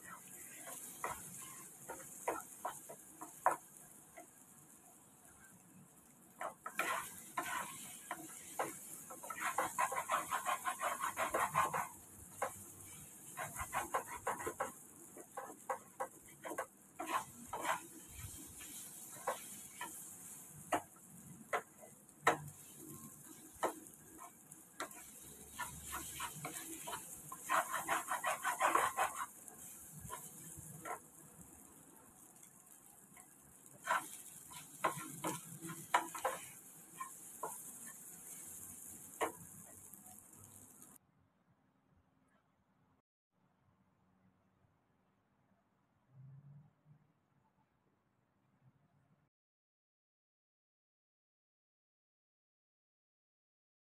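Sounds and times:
wooden spatula scraping frying pan: 0.0s - 4.4s, 6.4s - 41.0s
sizzle of frying: 0.0s - 41.0s.

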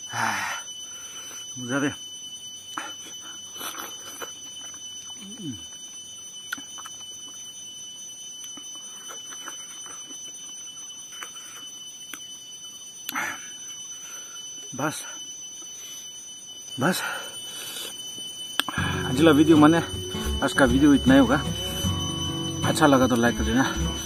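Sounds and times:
steady high-pitched whine: 0.0s - 24.0s
mouth chewing clicks: 6.5s - 7.0s.

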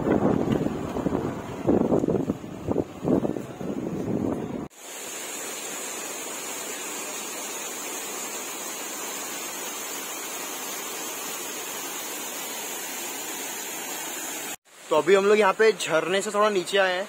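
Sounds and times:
waterfall splashing on rocks: 4.7s - 17.0s.

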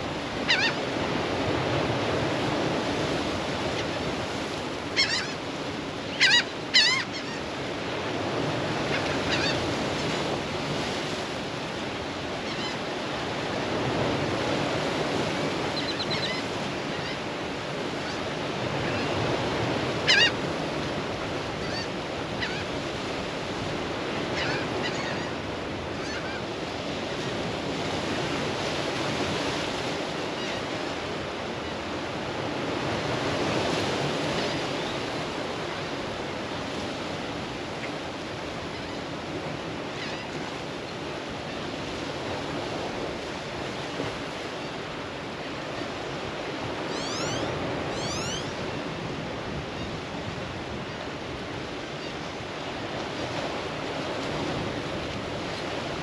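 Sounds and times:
waves against rocky shore: 0.0s - 56.0s
bird calls: 46.9s - 48.6s.

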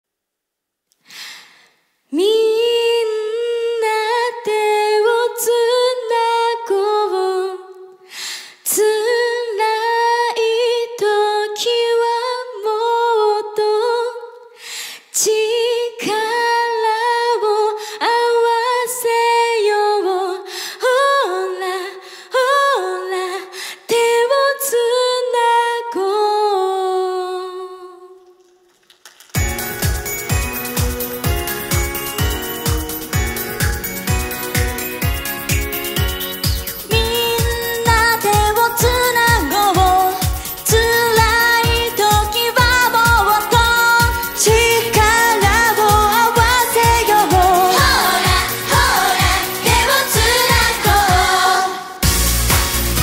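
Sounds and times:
woman singing a cappella: 2.1s - 28.3s, 36.9s - 52.0s.

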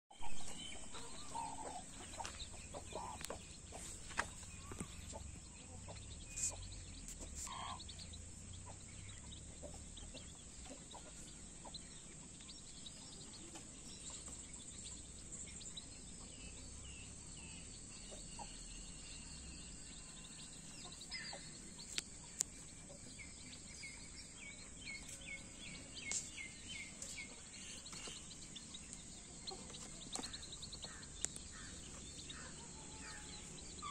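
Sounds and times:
chicks peeping softly: 0.1s - 33.9s
hen clucking: 0.3s - 11.8s.

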